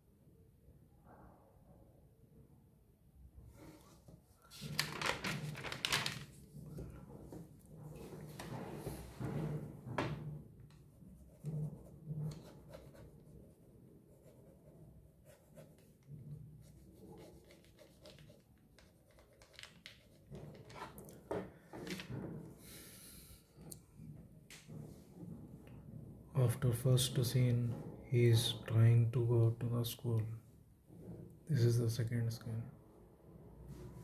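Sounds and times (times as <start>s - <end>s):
pen scratching on paper: 11.0s - 19.4s.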